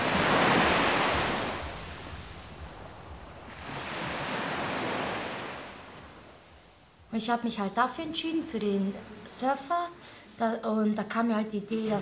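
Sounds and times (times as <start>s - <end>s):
ocean waves washing in: 0.0s - 7.2s.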